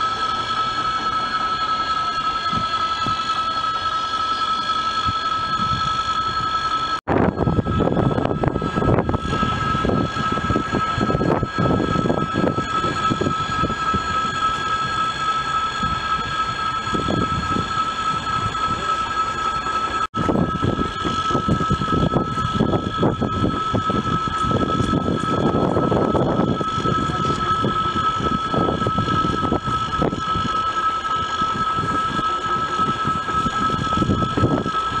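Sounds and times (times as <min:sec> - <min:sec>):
electric train whine: 0:00.0 - 0:35.0.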